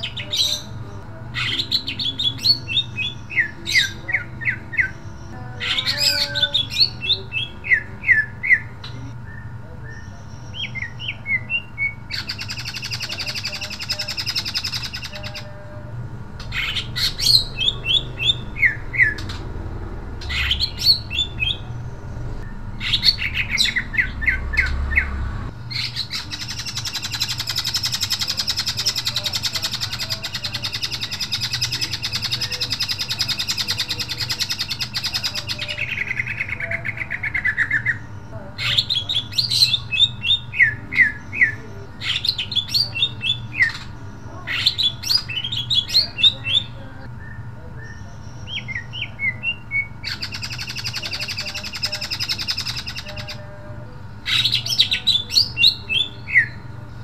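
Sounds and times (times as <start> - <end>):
bird singing whistled notes: 1.4 - 15.5, 44.6 - 53.4.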